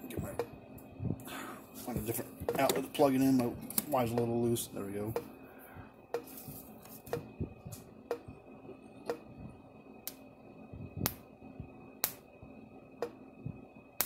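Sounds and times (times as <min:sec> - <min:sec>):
sparks cracking: 0:12.0 - 0:12.3.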